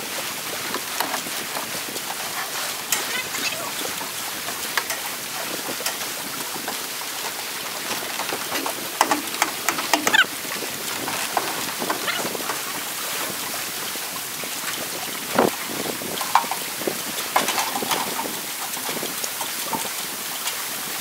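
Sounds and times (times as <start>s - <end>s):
lake water lapping: 0.0s - 21.0s
wind: 0.0s - 21.0s
metal dock frame clattering: 0.7s - 13.0s, 16.0s - 20.3s.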